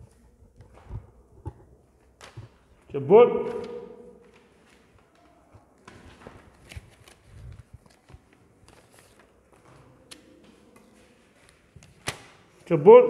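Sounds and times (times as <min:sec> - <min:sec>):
paper rustling: 0:03.4 - 0:12.6.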